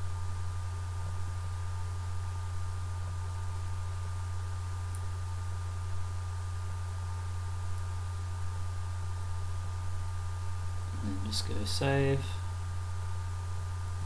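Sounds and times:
low electrical hum: 0.0 - 14.0
even hiss: 10.8 - 12.5.

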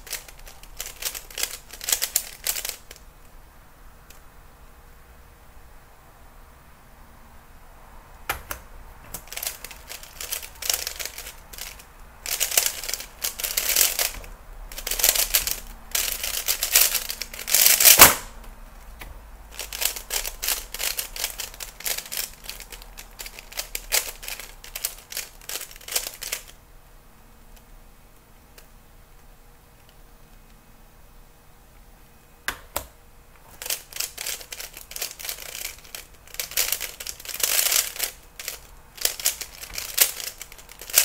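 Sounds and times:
plastic cube clicking and clacking: 0.0 - 3.0, 9.2 - 18.3, 19.6 - 26.5, 33.6 - 41.0.

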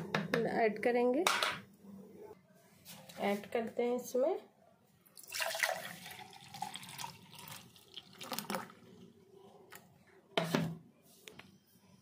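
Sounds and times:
milkshake pouring into glass: 5.2 - 9.1.

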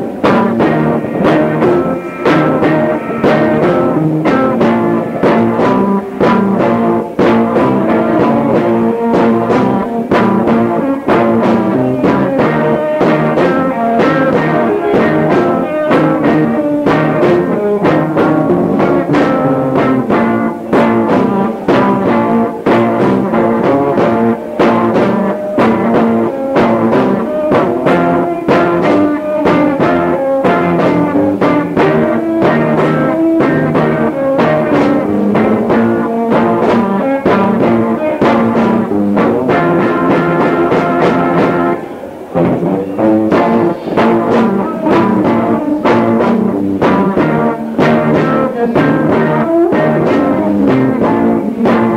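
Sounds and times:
drums playing steady beat: 0.0 - 51.9
electric guitar: 0.0 - 51.9
faint vocals: 0.0 - 51.9.

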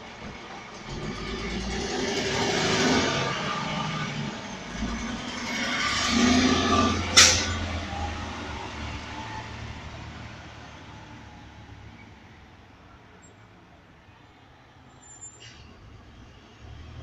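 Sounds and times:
garbage truck engine: 0.0 - 12.0.

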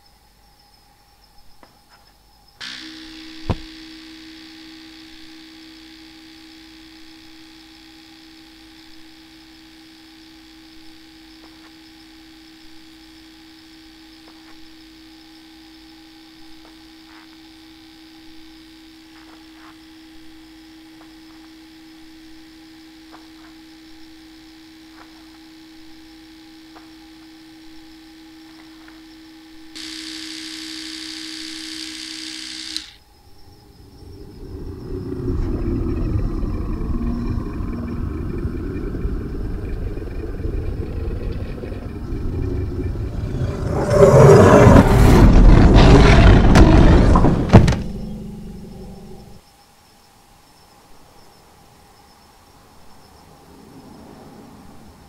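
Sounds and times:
electrical buzzing hum: 0.0 - 55.0.

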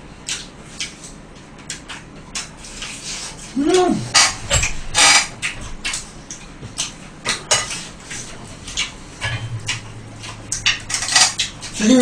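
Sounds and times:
low steady hum: 2.3 - 12.0
chopsticks and dishes clattering: 4.1 - 6.0, 6.8 - 12.0.

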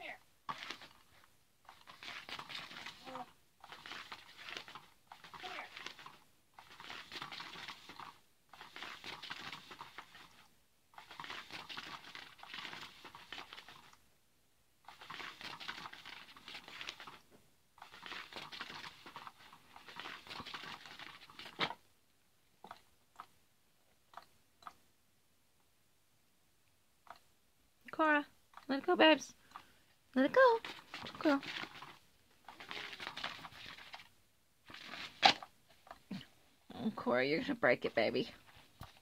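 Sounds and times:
cat toy crinkling rustle: 0.5 - 14.0, 14.9 - 21.8, 30.5 - 35.5.

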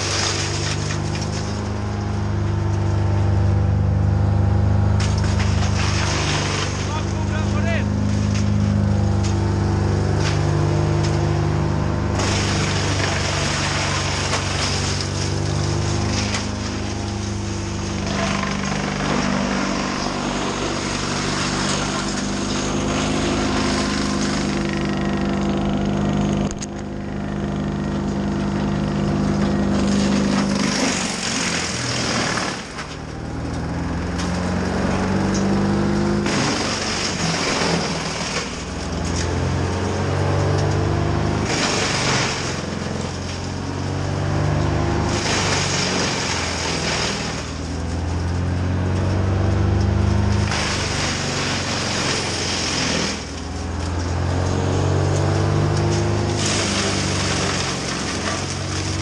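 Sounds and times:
heavy machine engine revving: 0.0 - 59.0.

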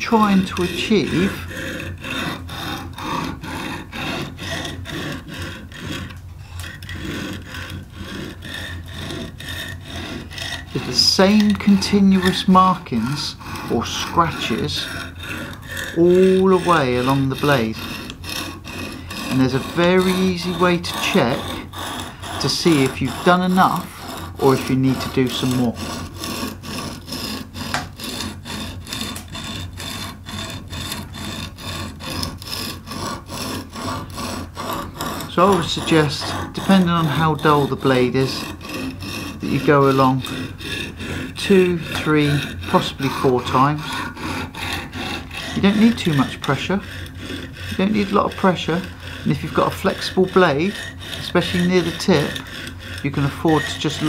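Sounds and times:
sharpening stone scraping knife edge: 0.2 - 29.5.

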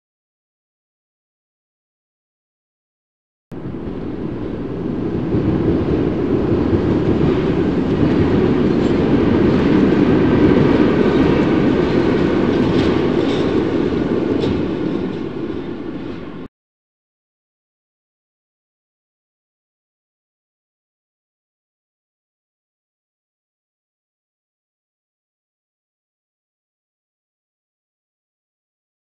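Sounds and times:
freight train rumbling on rails: 3.5 - 16.5.

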